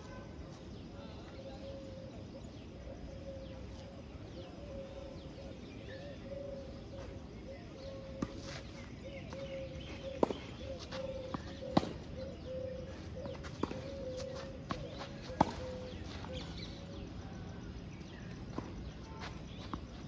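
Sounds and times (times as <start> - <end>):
tennis ball hit and bouncing: 10.1 - 12.0.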